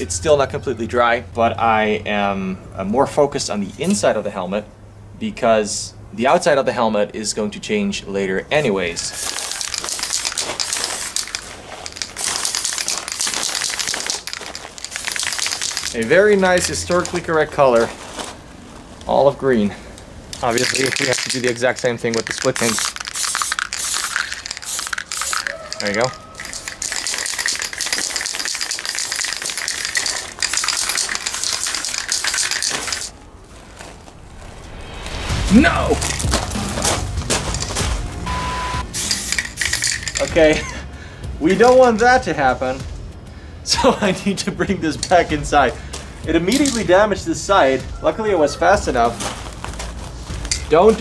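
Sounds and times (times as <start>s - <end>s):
aerosol spray can hissing: 9.1s - 16.0s, 22.2s - 33.1s, 38.8s - 40.2s.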